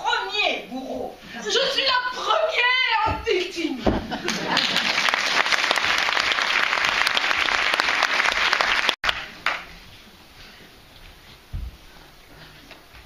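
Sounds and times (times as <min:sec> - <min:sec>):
audience applauding: 0:04.2 - 0:09.6.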